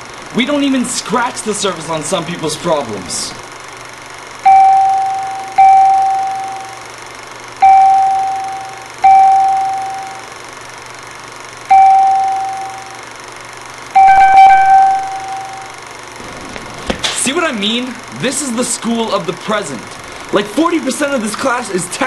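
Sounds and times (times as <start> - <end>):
electronic ding: 4.5 - 6.8, 7.6 - 10.3, 11.7 - 13.0, 14.0 - 15.8
higher electronic ding: 4.5 - 6.8, 7.6 - 10.3, 11.7 - 13.0, 14.0 - 15.8.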